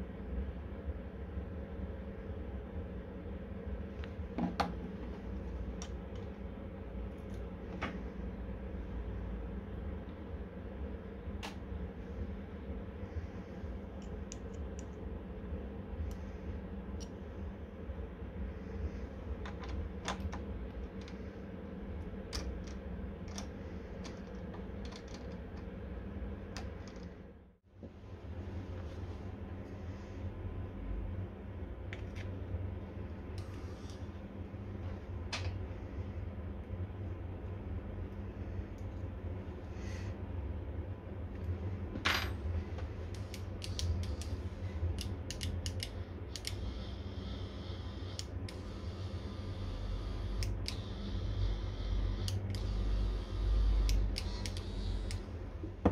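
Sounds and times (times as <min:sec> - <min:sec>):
steady low hum: 0:00.0 - 0:55.9
sharp light clicks of parts: 0:43.1 - 0:46.6, 0:53.8 - 0:55.2.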